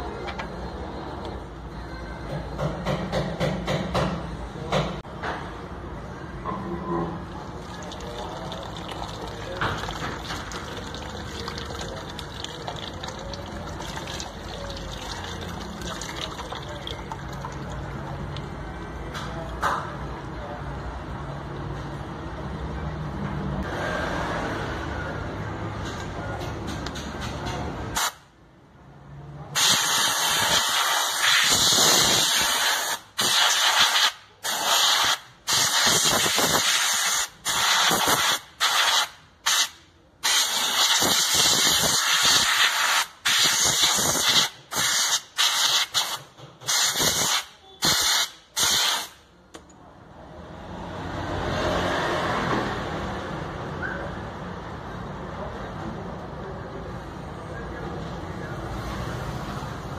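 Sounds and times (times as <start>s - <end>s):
spray hissing in bursts: 29.6s - 49.2s.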